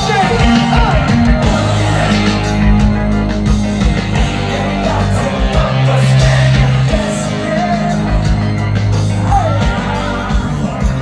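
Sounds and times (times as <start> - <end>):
electric guitar: 0.0 - 11.0
loud live band music: 0.0 - 11.0
sustained bass notes: 0.0 - 11.0.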